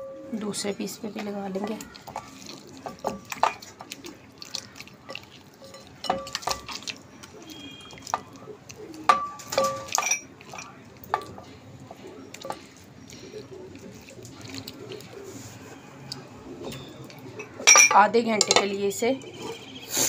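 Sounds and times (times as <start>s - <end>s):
hand squishing marinade into chicken: 0.4s - 17.6s.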